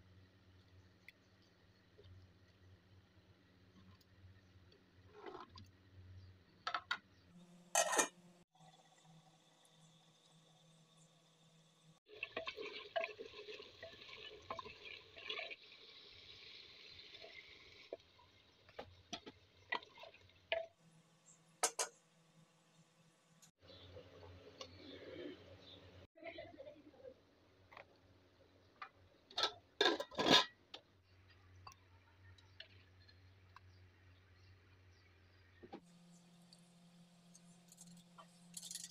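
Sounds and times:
meat sizzling and bubbling in a pot: 0.0 - 26.2
spoon clinking and scraping a pot: 7.7 - 8.2, 21.6 - 22.0, 29.3 - 30.6, 37.4 - 38.9.

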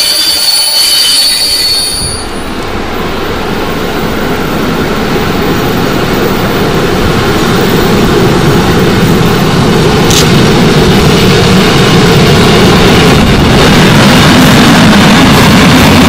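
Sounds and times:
train wheels rumbling on rails: 0.0 - 16.0
sharp click: 10.1 - 10.3.

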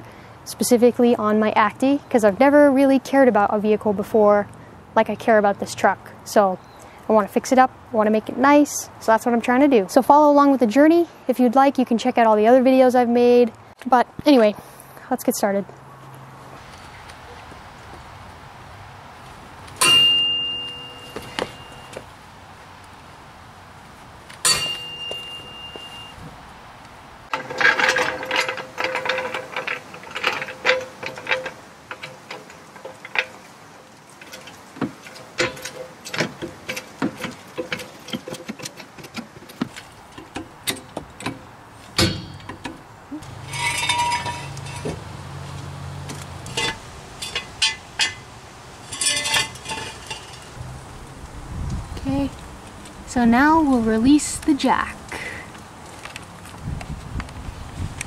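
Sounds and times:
metal tools clinking: 19.8 - 22.0, 24.4 - 26.2, 27.3 - 33.5, 34.2 - 39.2, 42.0 - 45.1, 46.4 - 50.6.

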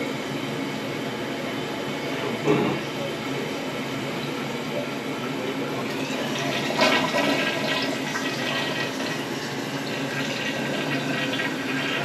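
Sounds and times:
toilet flushing: 5.6 - 12.0.

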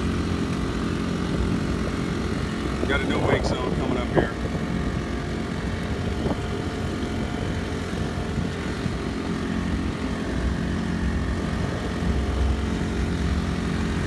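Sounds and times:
outboard engine running: 0.0 - 14.0.

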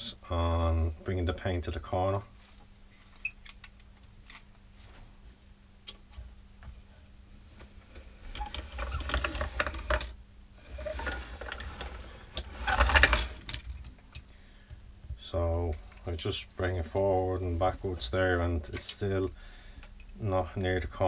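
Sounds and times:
paint edger rolling and rattling: 8.3 - 13.8.

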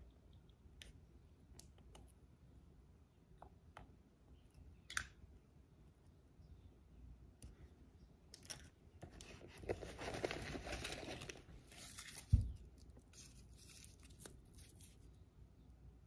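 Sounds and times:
wrappers crinkling and rustling: 9.2 - 15.1.

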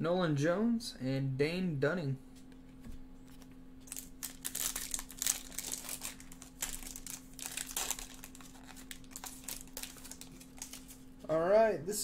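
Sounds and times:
foil wrapper crinkling and tearing: 3.4 - 11.1.

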